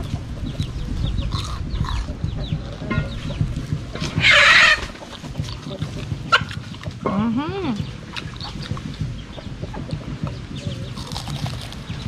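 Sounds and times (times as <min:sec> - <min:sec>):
chickens chirping: 0:00.0 - 0:12.0
chicken squawk: 0:04.1 - 0:05.0.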